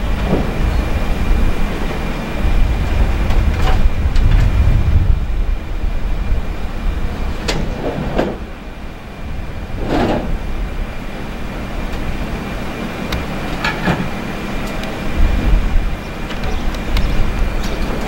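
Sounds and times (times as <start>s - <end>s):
truck engine running: 0.0s - 18.0s
dull knocks of tires loaded: 0.1s - 0.9s, 7.4s - 8.6s, 13.6s - 14.2s.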